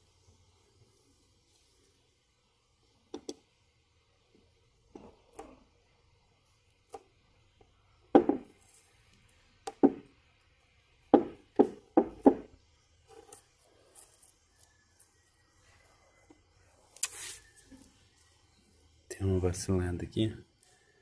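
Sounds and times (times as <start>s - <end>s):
hollow knocks on plastic: 8.1s - 8.5s, 9.7s - 10.1s, 11.1s - 12.5s
small clicks and scratches: 13.0s - 18.3s.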